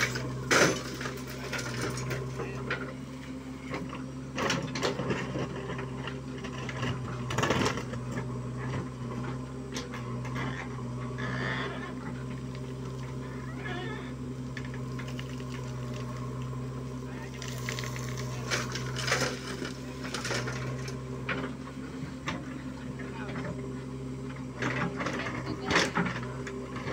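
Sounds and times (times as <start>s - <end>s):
diesel engine running under load: 0.0s - 26.9s.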